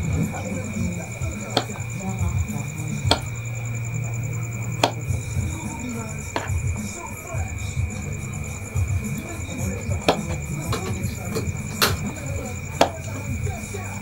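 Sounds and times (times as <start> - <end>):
cricket trill: 0.0 - 14.0
low hum: 0.0 - 14.0
sharp taps on wood: 4.8 - 5.0.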